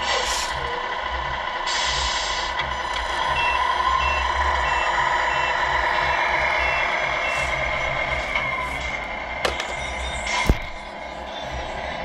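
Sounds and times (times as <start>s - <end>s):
drive motor whine: 0.0s - 12.0s
toy truck engine sound: 0.0s - 12.0s
reversing beeper: 3.2s - 8.9s.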